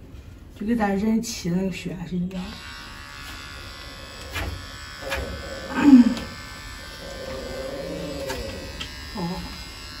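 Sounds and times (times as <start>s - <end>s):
electric pet clippers buzzing: 2.3s - 10.0s.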